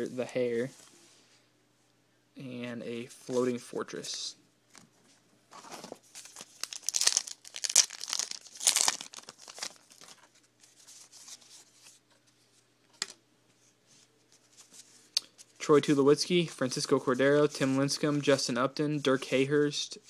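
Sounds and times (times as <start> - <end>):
wrapper crinkling: 5.5 - 11.6
card pack wrapper tearing: 6.2 - 10.2.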